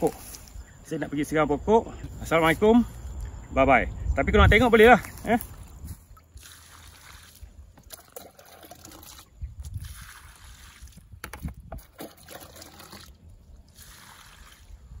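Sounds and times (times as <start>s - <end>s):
water splashing and trickling: 4.7s - 15.0s.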